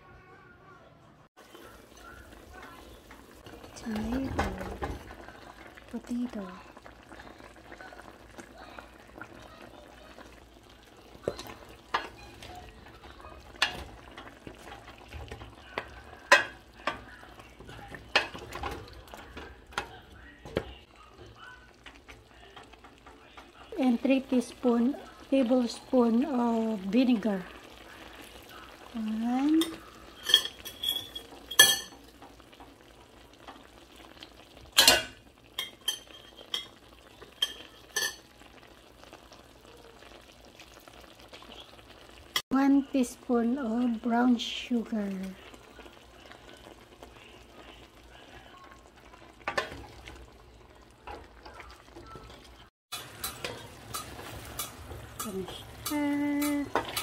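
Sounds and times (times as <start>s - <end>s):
food sizzling in a pan: 1.4s - 57.0s
metal clinking against steel pan: 29.6s - 32.0s, 37.4s - 38.2s.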